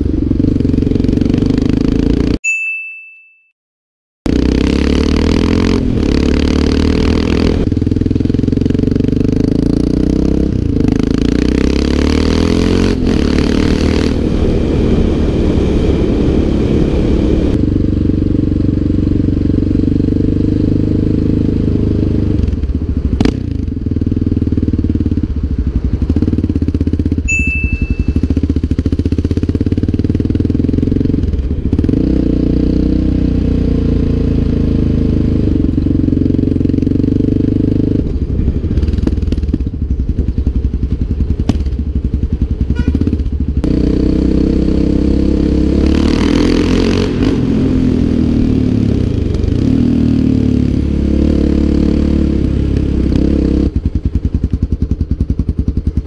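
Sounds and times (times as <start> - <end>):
quad bike engine running: 0.0 - 2.4, 4.3 - 56.0
high beep: 27.3 - 28.4.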